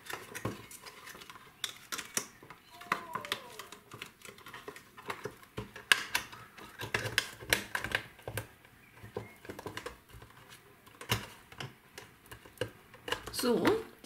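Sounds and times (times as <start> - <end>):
stiff plastic crackling and clicking: 0.0 - 14.0.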